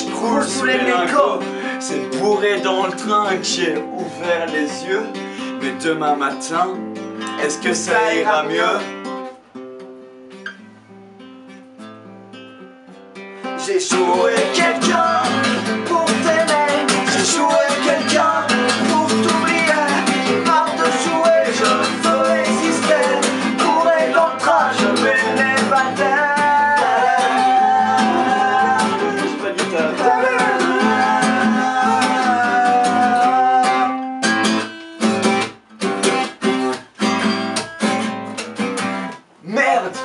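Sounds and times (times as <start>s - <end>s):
man singing: 0.0s - 8.9s, 13.6s - 34.3s
acoustic guitar strumming: 0.0s - 40.0s.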